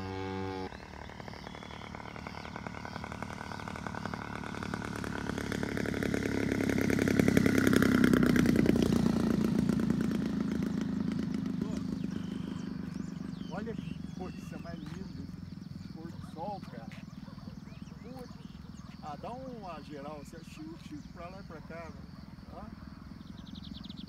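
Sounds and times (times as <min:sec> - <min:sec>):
model airplane engine: 0:00.0 - 0:16.4.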